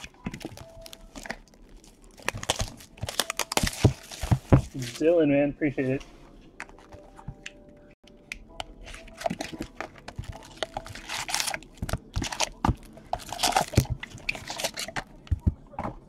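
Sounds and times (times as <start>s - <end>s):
packaging crinkling: 0.0s - 5.0s, 8.9s - 15.2s.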